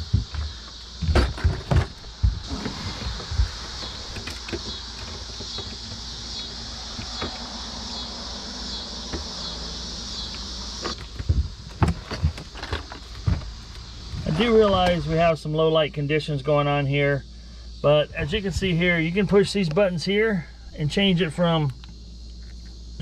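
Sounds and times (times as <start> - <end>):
low hum: 0.0 - 16.1
high-pitched rippling hiss: 0.0 - 23.0.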